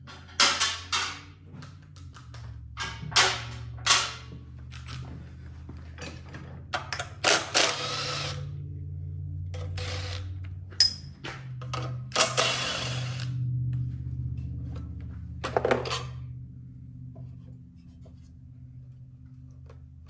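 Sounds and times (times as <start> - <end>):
tools and metal parts clattering: 0.0 - 5.2, 5.9 - 7.8, 10.7 - 12.9, 15.4 - 16.3
steady low hum: 0.0 - 20.0.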